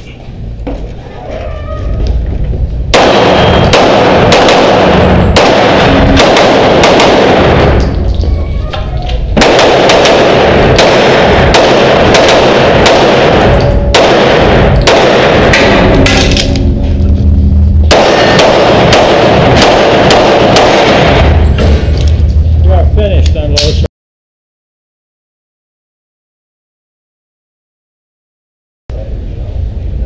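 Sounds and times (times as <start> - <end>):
pistol shots echoing indoors: 2.9 - 8.7, 9.4 - 22.5.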